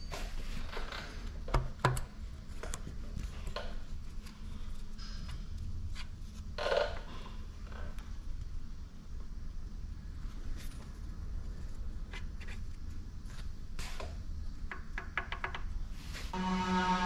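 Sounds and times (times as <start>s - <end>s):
low steady hum: 15.8s - 17.0s.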